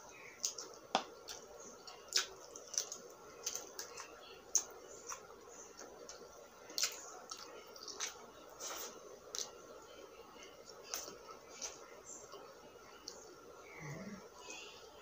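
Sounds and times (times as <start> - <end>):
person chewing meat: 0.4 - 9.6.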